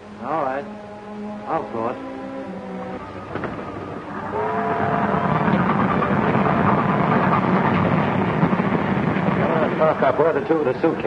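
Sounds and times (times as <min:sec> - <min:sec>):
train whistle chord: 0:00.0 - 0:07.8
train running noisily: 0:01.4 - 0:11.0.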